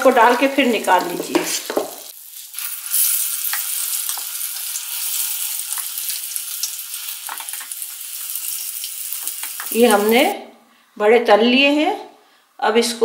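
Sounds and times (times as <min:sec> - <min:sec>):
food deep-frying in oil: 0:00.0 - 0:10.3.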